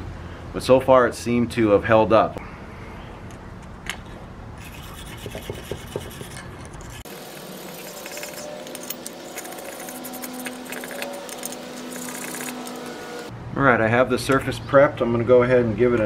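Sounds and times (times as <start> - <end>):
hand tool scrubbing metal: 4.6 - 13.3.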